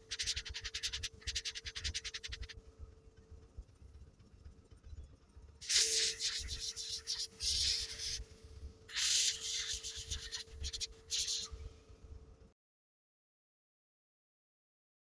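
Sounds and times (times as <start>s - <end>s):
airbrush spraying hiss: 5.6s - 8.3s, 8.9s - 11.6s.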